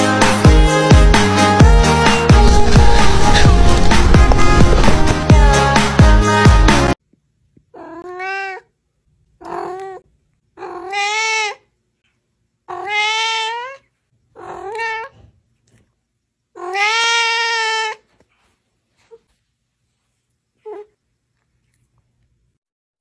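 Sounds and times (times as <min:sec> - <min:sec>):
cat meowing: 0:07.7 - 0:08.7, 0:09.4 - 0:10.0, 0:10.6 - 0:11.7, 0:12.7 - 0:15.3, 0:16.6 - 0:18.1.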